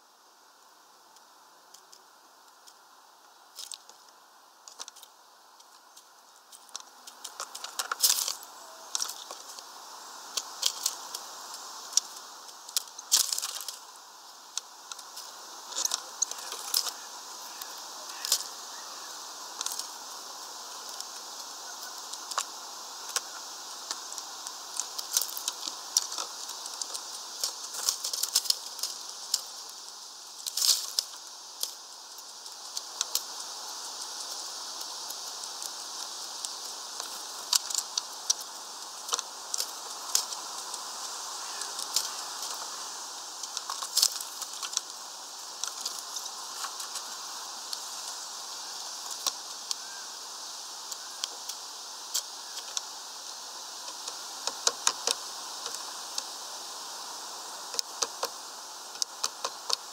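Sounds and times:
steady background hiss: 0.0s - 59.9s
birds pecking seed husks: 0.5s - 59.9s.

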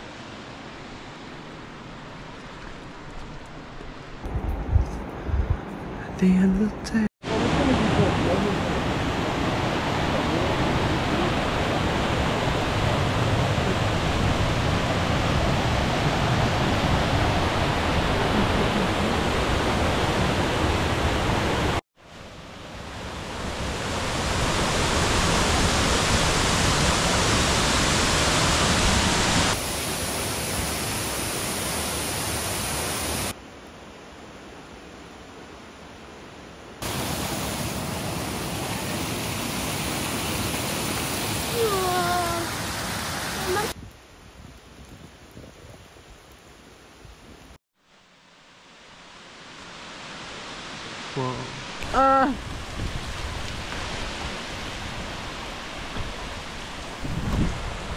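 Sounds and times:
rushing water: 7.2s - 33.4s, 36.8s - 43.8s, 47.9s - 57.9s.

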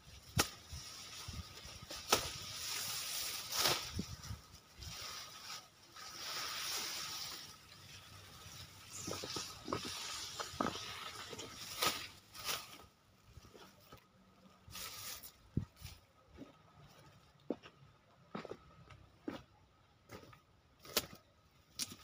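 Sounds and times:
dry rustle of grass leaves: 0.0s - 17.1s
grass stalks snapping: 0.2s - 4.1s, 8.9s - 12.8s, 20.8s - 22.0s.

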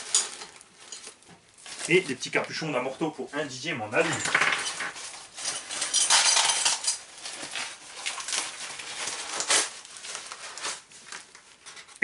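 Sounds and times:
packing paper rustling and crackling: 0.0s - 12.0s.

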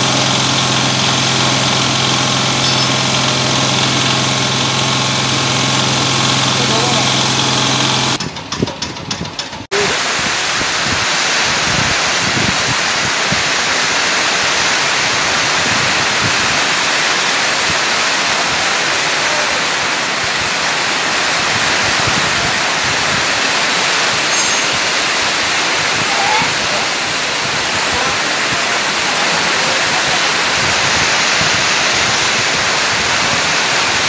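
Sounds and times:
compost shredder running: 0.0s - 34.0s.

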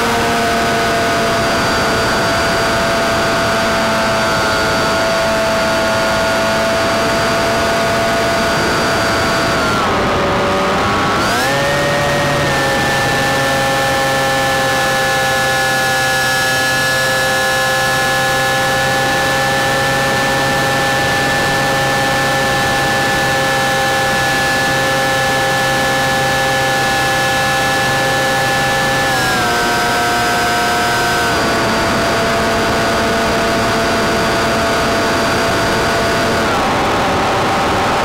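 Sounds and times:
model airplane motor whining: 0.0s - 38.0s
wind rushing over camera: 17.2s - 38.0s.

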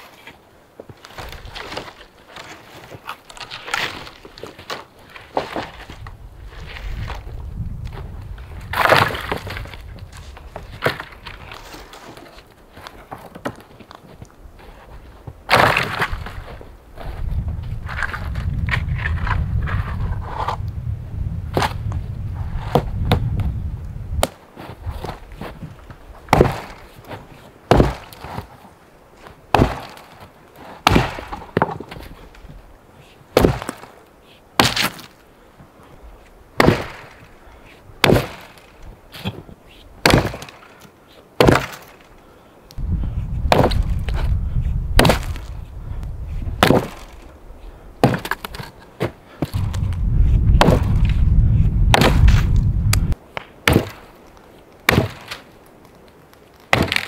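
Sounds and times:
axe chopping log: 8.7s - 9.7s, 15.5s - 16.4s, 26.3s - 26.9s, 27.7s - 28.5s, 29.5s - 30.2s, 30.8s - 32.0s, 33.4s - 33.9s, 34.6s - 35.1s, 36.6s - 37.2s, 38.0s - 39.3s, 40.0s - 40.7s, 41.4s - 42.0s, 43.4s - 44.4s, 45.0s - 45.5s, 46.6s - 47.2s, 48.0s - 49.9s, 50.5s - 51.1s, 51.8s - 54.1s, 54.8s - 55.5s, 56.7s - 57.0s
low rumble: 42.8s - 46.6s, 49.5s - 53.2s.

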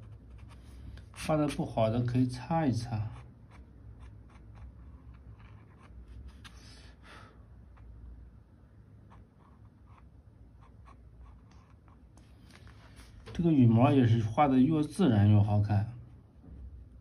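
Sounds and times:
pencil scratching on paper: 0.0s - 1.6s, 2.9s - 6.5s, 9.1s - 12.1s.

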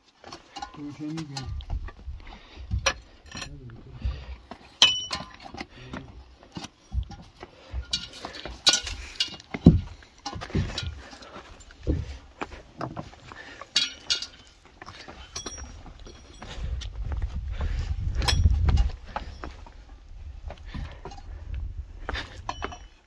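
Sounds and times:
footsteps on rock: 0.0s - 22.9s
metal teapot clinking: 4.8s - 5.4s, 13.7s - 14.5s, 15.2s - 16.4s.

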